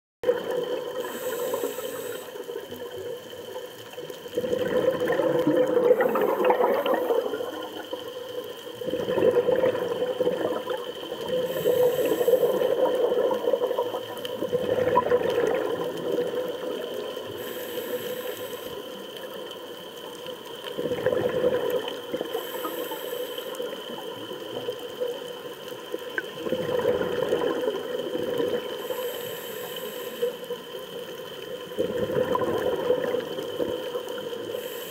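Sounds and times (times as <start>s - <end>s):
underwater exhaled bubbles rushing: 0.2s - 34.9s
diver inhaling through regulator: 0.8s - 2.8s, 11.2s - 13.2s, 17.2s - 19.0s, 22.2s - 23.8s, 28.7s - 30.7s, 34.4s - 34.9s.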